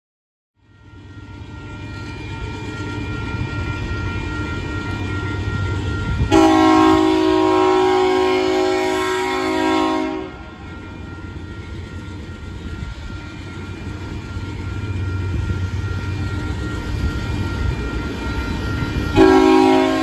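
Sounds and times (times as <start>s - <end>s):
locomotive air horn: 6.2s - 10.6s, 19.2s - 20.0s.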